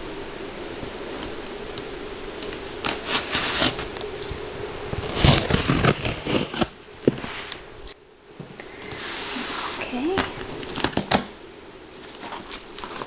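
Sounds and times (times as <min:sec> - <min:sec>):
scissors slitting packing tape: 0:02.4 - 0:03.9, 0:05.0 - 0:06.7
tape ripping: 0:02.4 - 0:04.1, 0:04.9 - 0:07.3, 0:10.6 - 0:11.3
cardboard scraping: 0:02.4 - 0:07.7, 0:11.9 - 0:13.0.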